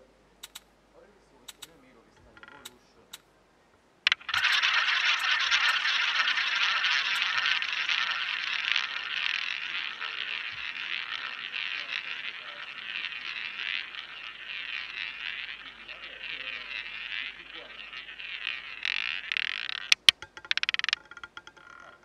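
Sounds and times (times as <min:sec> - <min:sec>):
ball rolling around roulette wheel: 0:01.5 - 0:02.8, 0:04.1 - 0:22.0
roulette ball launch click: 0:04.1 - 0:21.0.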